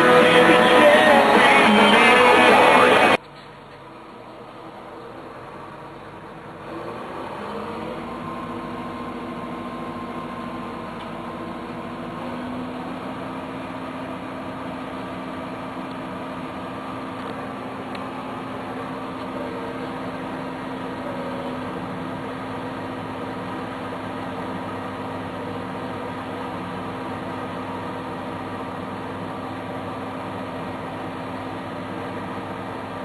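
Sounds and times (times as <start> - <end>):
vehicle engine droning: 0.0 - 33.0.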